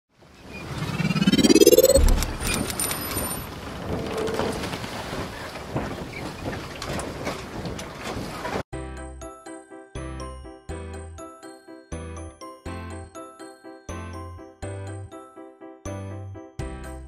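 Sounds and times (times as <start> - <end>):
rising swoosh: 0.4 - 2.9
tinkling jingle music: 8.8 - 17.0.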